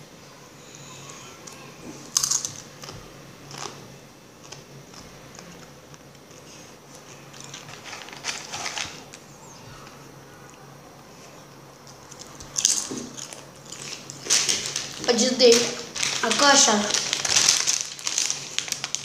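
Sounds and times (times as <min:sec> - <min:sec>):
corn chips crunching: 0:01.4 - 0:03.8, 0:06.3 - 0:09.2, 0:11.9 - 0:19.0.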